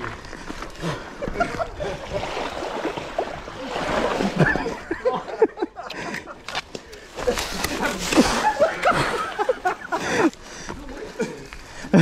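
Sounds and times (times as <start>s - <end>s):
bike tyres splashing through water: 1.5s - 5.1s.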